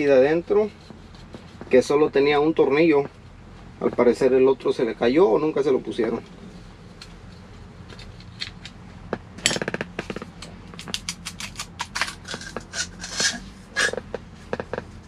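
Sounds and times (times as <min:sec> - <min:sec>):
metal clicks and scrapes: 0:09.4 - 0:14.9.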